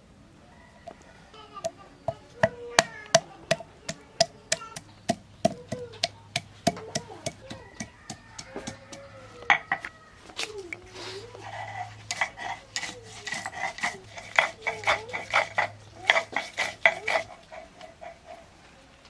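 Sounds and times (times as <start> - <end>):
pestle pounding on wooden board: 1.6 - 9.6, 12.1 - 17.5.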